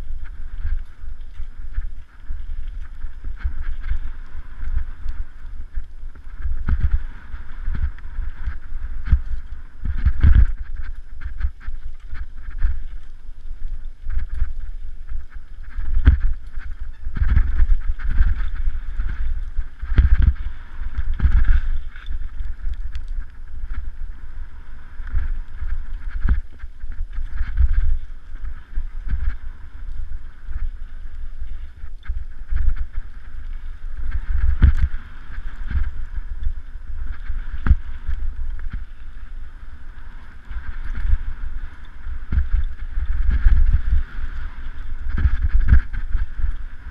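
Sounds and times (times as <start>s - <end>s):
bike knocking and rattling: 0.0s - 23.9s
wind buffeting microphone: 0.0s - 46.9s.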